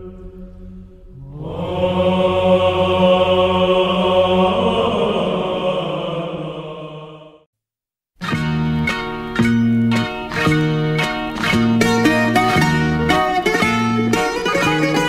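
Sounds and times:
low drone: 0.0 - 5.9
slow chanted singing: 0.0 - 7.5.

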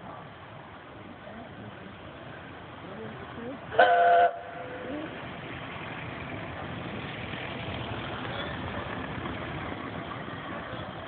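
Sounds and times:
steam locomotive running: 1.3 - 11.0
steam whistle blast: 3.8 - 4.9.

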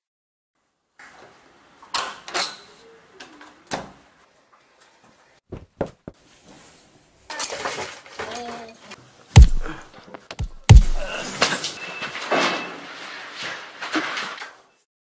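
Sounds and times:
wooden door knocks and thumps: 5.5 - 6.2.

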